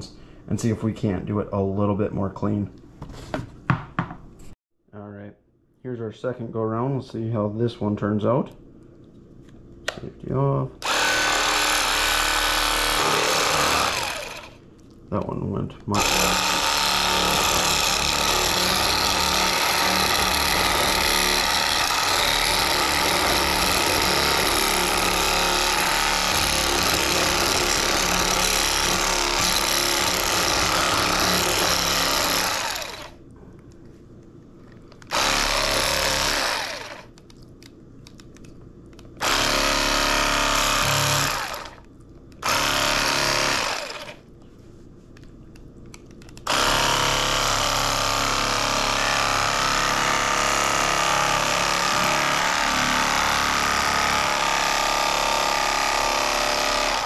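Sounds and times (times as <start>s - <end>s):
electric knife buzzing: 10.8s - 14.6s, 15.9s - 33.2s, 35.1s - 37.1s, 39.2s - 41.8s, 42.4s - 44.2s, 46.4s - 57.0s.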